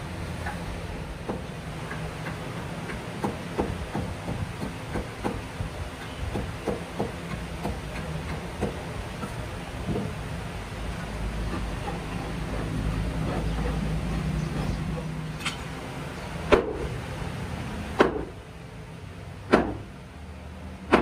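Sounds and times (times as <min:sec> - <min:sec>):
hatchet chopping wood: 0:19.5 - 0:19.8.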